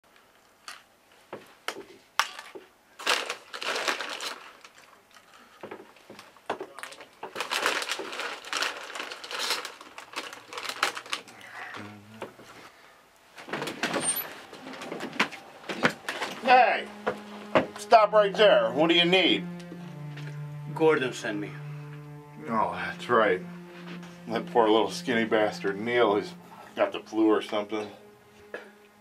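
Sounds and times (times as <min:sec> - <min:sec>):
foil bag crinkling: 0:03.0 - 0:05.5, 0:06.8 - 0:11.7.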